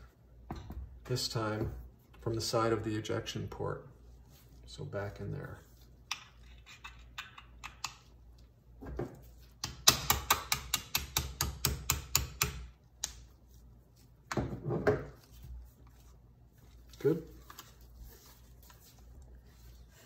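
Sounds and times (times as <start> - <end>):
small hammer tapping a pin: 9.6 - 13.2.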